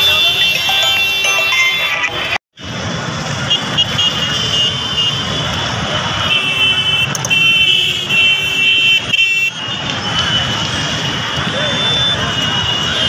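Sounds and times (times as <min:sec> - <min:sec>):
motorbikes: 0:00.0 - 0:13.0.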